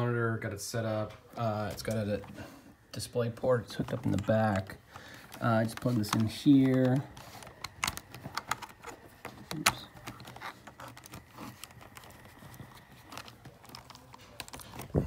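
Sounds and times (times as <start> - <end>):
cable connectors clicking into ports: 3.6 - 15.0.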